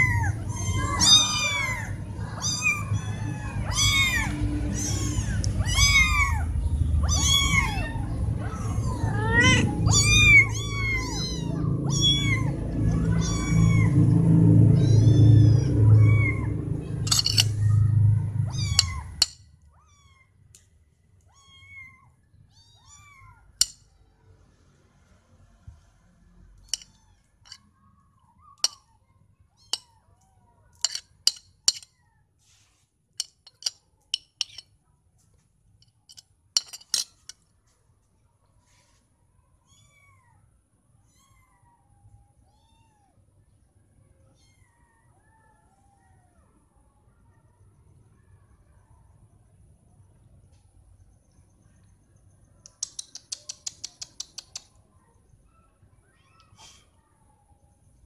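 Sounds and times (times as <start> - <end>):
kittens meowing: 0.0 - 14.0, 14.7 - 20.3, 21.3 - 23.6
low rumble: 6.2 - 19.2
sharp clicks and taps: 52.6 - 54.7.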